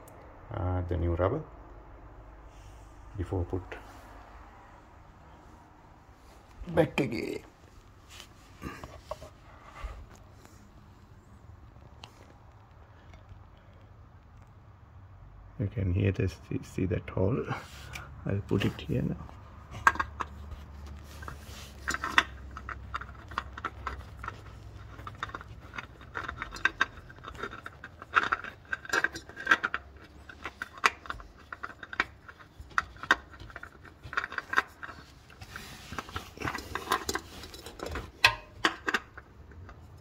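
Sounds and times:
scraping: 0:17.5 - 0:40.0
metal and plastic clicks and knocks: 0:19.7 - 0:40.0.

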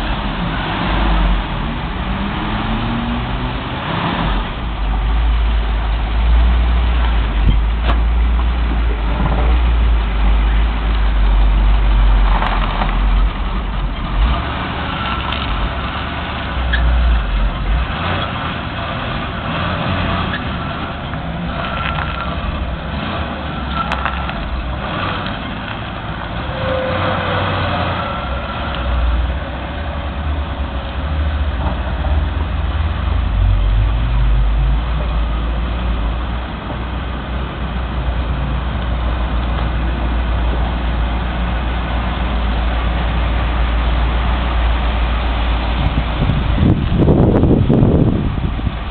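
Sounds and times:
car engine deep rumble: 0:00.0 - 0:48.9.

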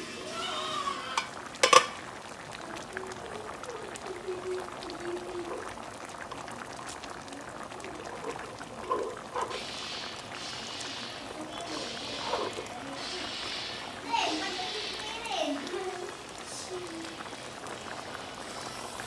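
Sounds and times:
soup bubbling in a pan: 0:00.0 - 0:19.0
metal pan lid clanking: 0:01.2 - 0:02.0.

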